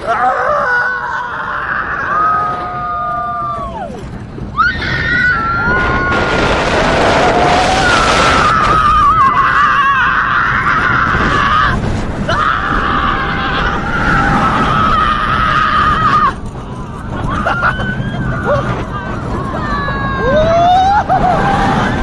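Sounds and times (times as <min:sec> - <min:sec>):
riders screaming: 0:00.0 - 0:22.0
rush of moving ride: 0:00.0 - 0:22.0.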